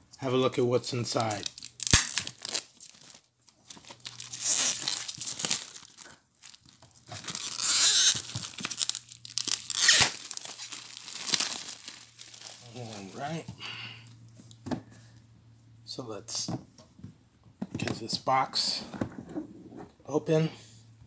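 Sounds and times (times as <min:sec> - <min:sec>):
plastic shrink-wrap tearing: 0:01.1 - 0:13.3.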